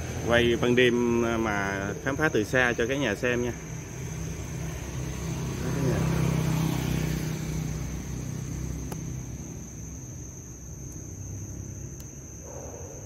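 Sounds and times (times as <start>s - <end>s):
crickets chirping: 0.0s - 13.0s
vehicle passing: 1.9s - 10.0s.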